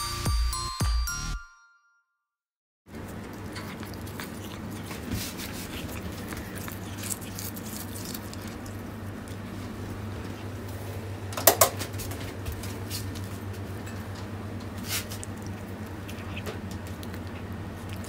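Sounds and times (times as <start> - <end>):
cat chewing grass: 2.9 - 11.1, 12.0 - 18.0.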